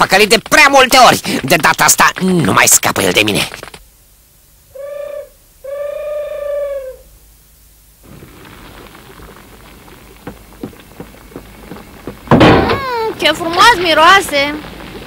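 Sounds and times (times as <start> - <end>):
fire crackling and popping: 0.0 - 4.5, 7.6 - 15.0
owl hooting: 4.7 - 7.2.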